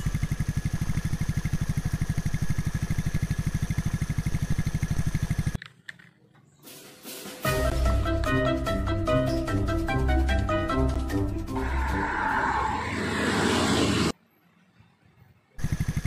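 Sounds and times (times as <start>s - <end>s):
truck engine throbbing: 7.6s - 14.2s.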